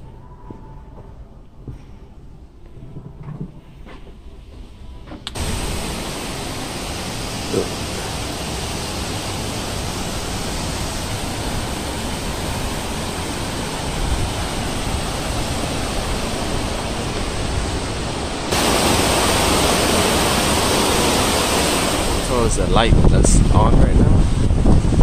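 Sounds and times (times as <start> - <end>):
steady rushing noise: 5.3 - 25.0.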